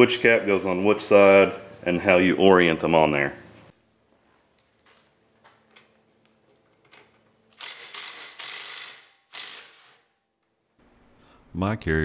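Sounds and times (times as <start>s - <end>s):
power ratchet spinning: 7.6s - 10.1s.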